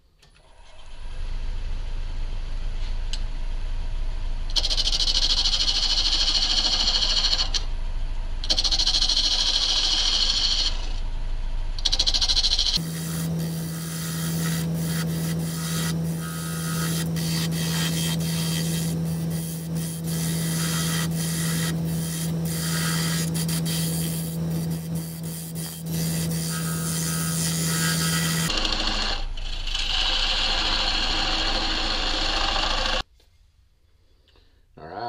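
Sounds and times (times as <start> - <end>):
wood lathe motor hum: 4.5 - 7.7, 8.4 - 11.0, 11.8 - 33.0
turning tool scraping wood: 11.8 - 33.0.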